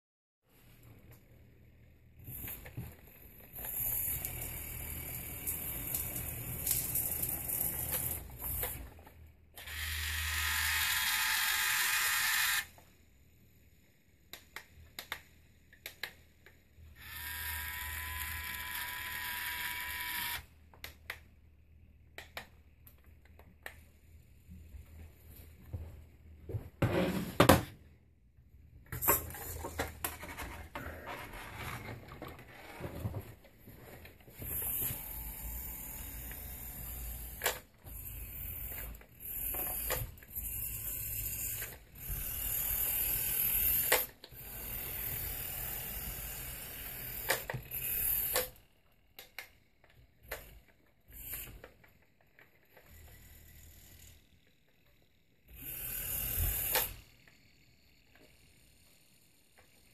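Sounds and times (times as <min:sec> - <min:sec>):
toy tractor motor whirring: 0:02.2 - 0:21.2, 0:34.4 - 0:59.9.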